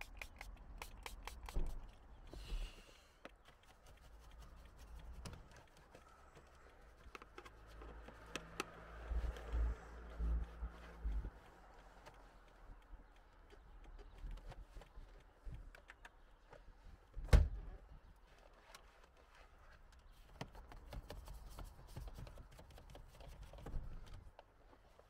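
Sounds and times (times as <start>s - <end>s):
brush scratching plastic dashboard: 0.0s - 2.1s, 3.3s - 15.2s, 18.6s - 25.0s
small ticks: 3.2s - 16.6s.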